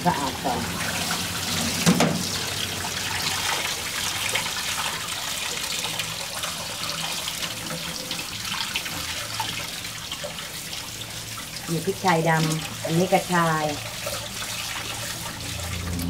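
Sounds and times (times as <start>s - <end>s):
tap water running into sink: 0.0s - 16.0s
water splashing over bowl: 0.0s - 16.0s.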